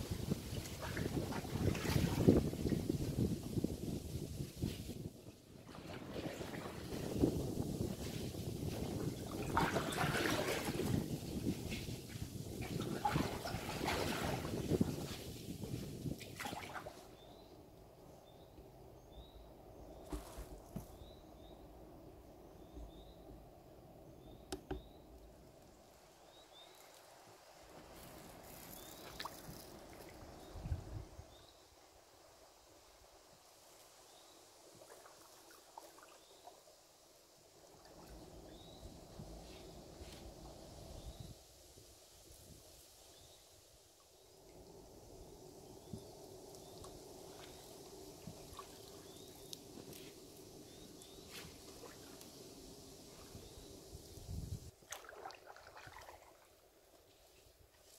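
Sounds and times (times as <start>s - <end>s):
low steady hiss: 0.0s - 57.9s
paddling water sounds: 0.2s - 3.2s, 5.0s - 17.4s, 46.6s - 57.9s
paddle knocking canoe hull: 24.5s - 24.9s.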